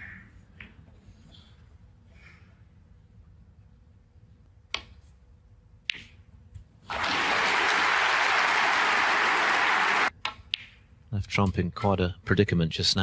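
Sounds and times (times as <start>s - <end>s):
audience applauding: 6.9s - 10.1s.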